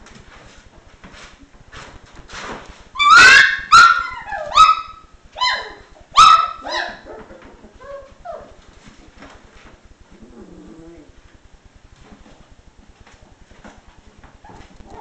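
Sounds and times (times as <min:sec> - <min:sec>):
puppy whimpering: 0:03.0 - 0:08.6, 0:10.1 - 0:11.2
puppy yipping: 0:03.0 - 0:08.6.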